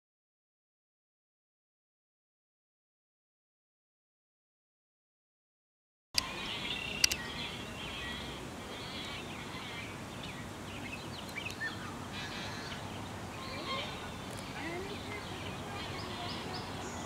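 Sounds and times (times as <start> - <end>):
birds chirping: 6.2 - 17.0
low outdoor rumble: 6.2 - 17.0
sharp clicks: 7.0 - 7.2.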